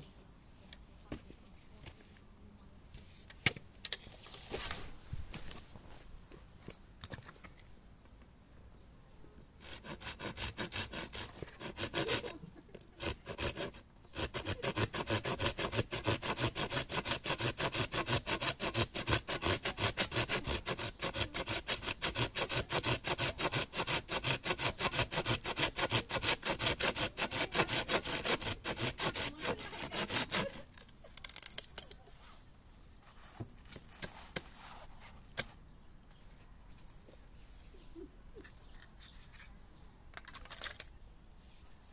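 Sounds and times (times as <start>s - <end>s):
hand saw cutting wood: 9.6s - 30.7s.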